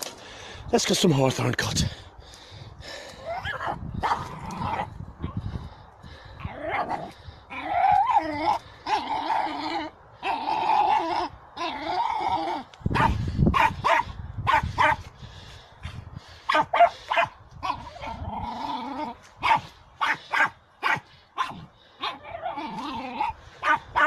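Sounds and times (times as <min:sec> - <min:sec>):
small dog yapping: 0:19.4 - 0:24.0.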